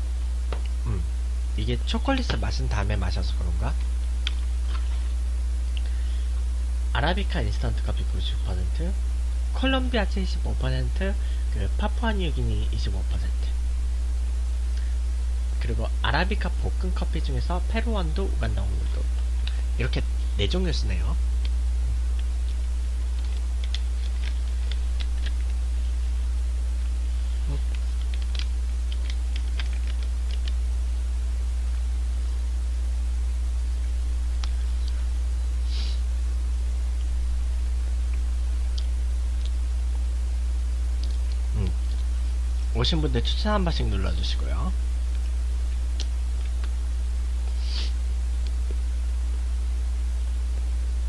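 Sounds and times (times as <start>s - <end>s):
low electrical hum: 0.0s - 51.0s
snack wrapper crackling: 23.2s - 25.6s, 27.6s - 30.6s
breathy hiss: 34.5s - 36.2s, 47.4s - 48.1s.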